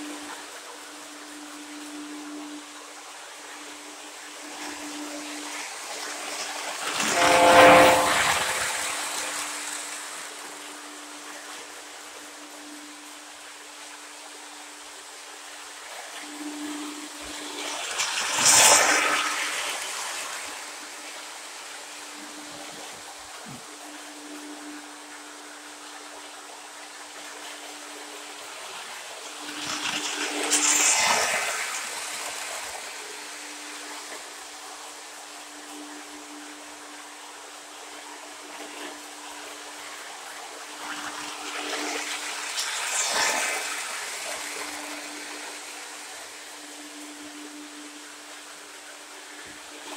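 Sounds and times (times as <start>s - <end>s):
steady hum: 0.0s - 49.9s
model train rolling by: 4.5s - 10.5s, 16.8s - 21.2s, 28.0s - 33.5s, 40.8s - 46.3s
train horn: 6.5s - 11.5s.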